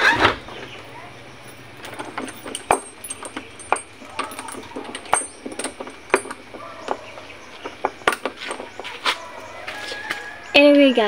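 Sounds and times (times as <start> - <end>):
key working a door lock: 1.5 - 9.4.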